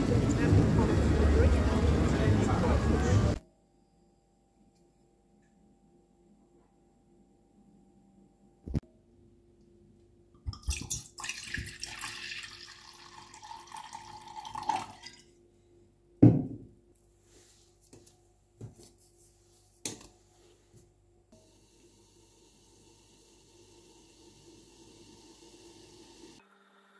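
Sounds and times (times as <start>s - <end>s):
liquid pouring into saucepan: 10.5s - 15.3s.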